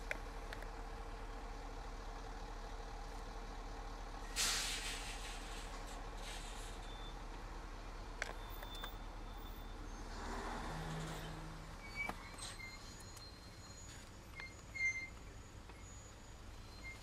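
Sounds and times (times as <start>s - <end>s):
road traffic hum: 0.0s - 17.0s
burst of hiss: 4.4s - 6.8s.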